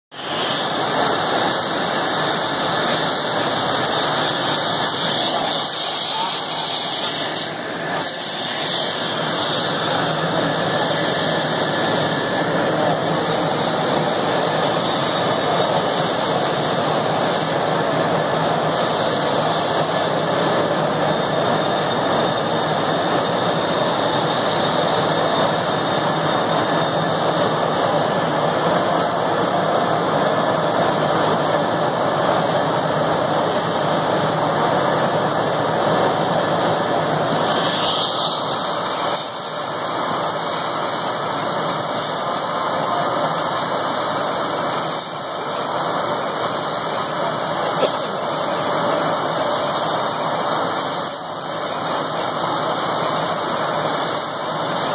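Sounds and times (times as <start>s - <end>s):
laser cutting machine rushing: 0.2s - 28.2s.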